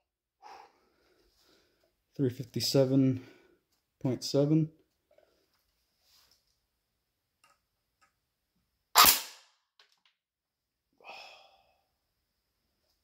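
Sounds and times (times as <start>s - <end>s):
airsoft gun shot: 9.0s - 9.5s.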